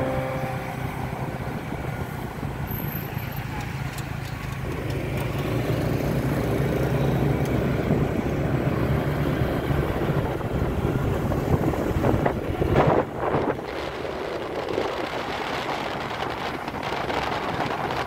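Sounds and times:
wind noise on microphone: 4.5 - 18.0.

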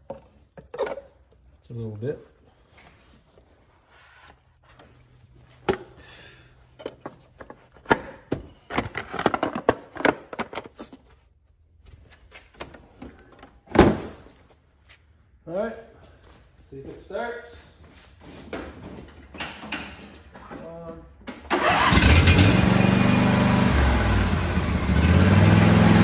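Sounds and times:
plastic clattering: 6.8 - 10.9.

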